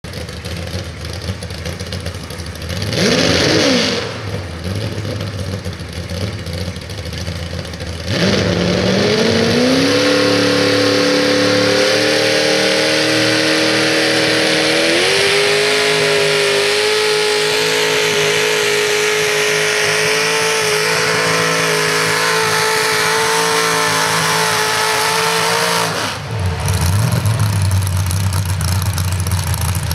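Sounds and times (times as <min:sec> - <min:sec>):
low engine rumble: 0:00.0 - 0:03.0, 0:03.9 - 0:29.9
tractor engine revving: 0:00.0 - 0:29.9.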